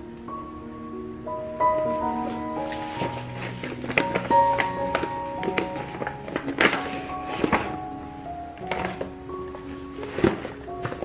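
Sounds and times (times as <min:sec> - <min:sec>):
instrumental music with held notes: 0:00.0 - 0:11.0.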